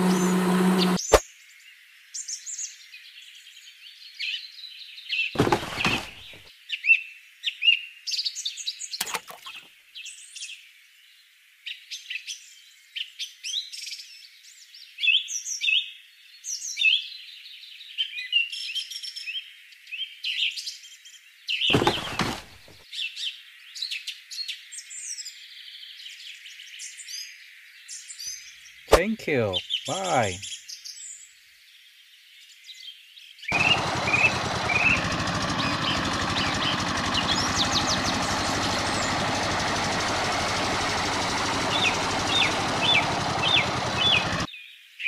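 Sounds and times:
small birds chirping: 0:03.8 - 0:06.4, 0:21.6 - 0:22.7, 0:25.7 - 0:44.8.

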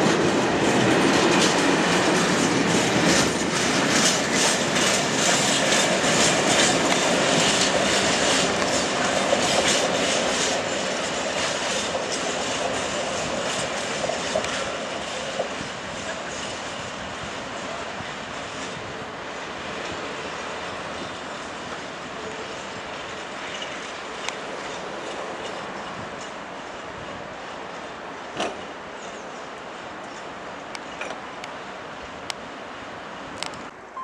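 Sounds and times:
train wheels clattering over rails: 0:00.0 - 0:31.3.

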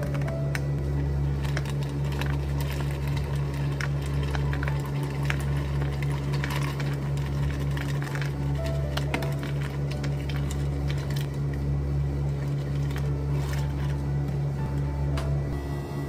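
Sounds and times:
low machine hum: 0:00.0 - 0:16.0.

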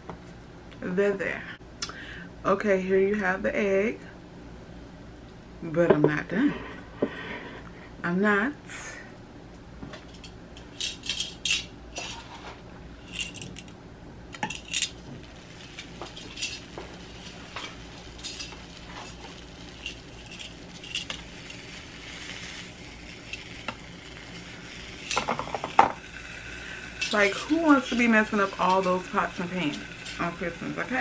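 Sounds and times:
metal tongs clinking on waffle maker: 0:14.4 - 0:15.0, 0:15.6 - 0:22.3, 0:25.0 - 0:26.0, 0:26.9 - 0:31.0
meat sizzling faintly: 0:14.5 - 0:31.0.

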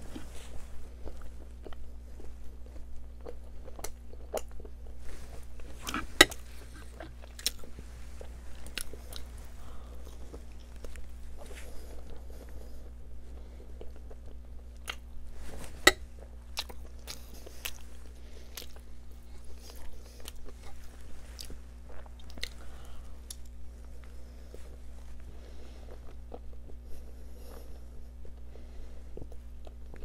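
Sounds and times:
person chewing with wet mouth clicks: 0:02.6 - 0:04.7, 0:05.6 - 0:07.7, 0:13.8 - 0:15.1, 0:16.5 - 0:17.8, 0:18.5 - 0:20.7, 0:21.4 - 0:22.6.

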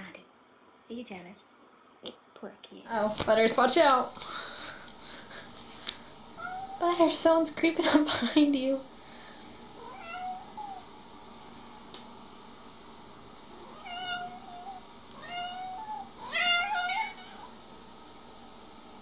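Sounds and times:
cat meowing: 0:06.4 - 0:06.8, 0:09.8 - 0:10.8, 0:13.6 - 0:17.6.

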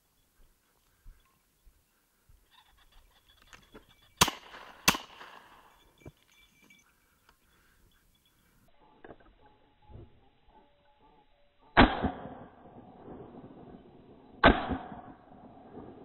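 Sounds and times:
bird calling: 0:00.0 - 0:04.8, 0:05.4 - 0:11.8
shotgun shots with echo: 0:04.2 - 0:05.6, 0:11.8 - 0:13.2, 0:14.4 - 0:16.0.

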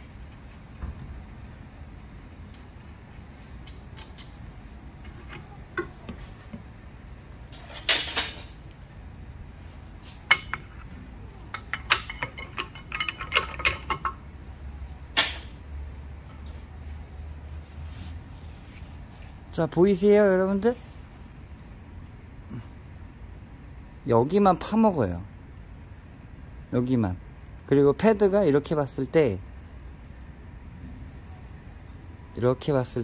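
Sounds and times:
metal clinks and scrapes: 0:07.5 - 0:08.7, 0:11.6 - 0:14.2.

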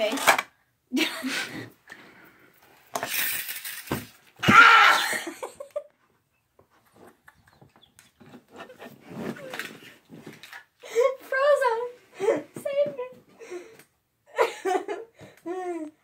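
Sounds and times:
girl laughing: 0:04.6 - 0:05.9, 0:14.3 - 0:16.0
rustling: 0:07.9 - 0:10.8.

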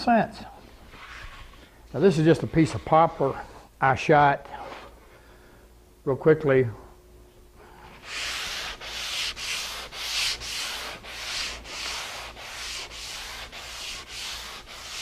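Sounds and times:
sandpaper rubbing on wood: 0:08.0 - 0:15.0.

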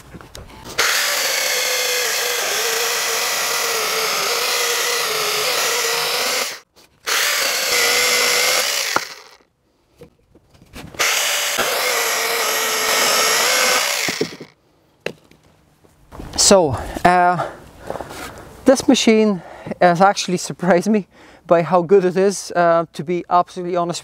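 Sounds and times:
chainsaw cutting log: 0:00.6 - 0:09.5, 0:11.0 - 0:14.6.

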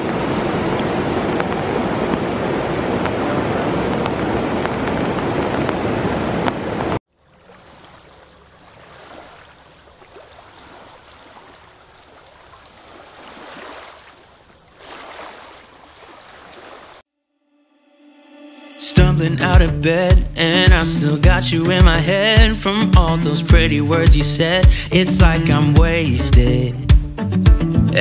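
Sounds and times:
distant waterfall: 0:00.0 - 0:17.0
rushing river water: 0:00.0 - 0:17.0.

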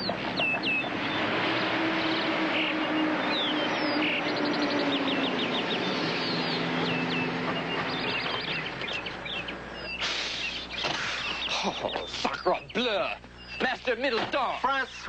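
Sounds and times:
car engine slowing: 0:00.0 - 0:10.0
birds chirping: 0:00.0 - 0:15.0.

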